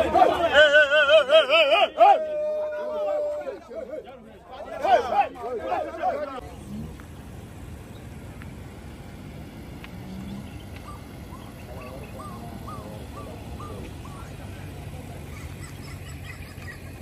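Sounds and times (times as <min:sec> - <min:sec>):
bird calling: 0:10.0 - 0:17.0.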